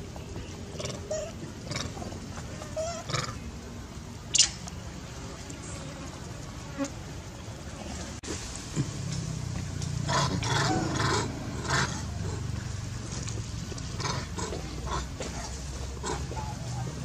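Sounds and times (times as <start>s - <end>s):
steady low hum: 8.8s - 15.2s.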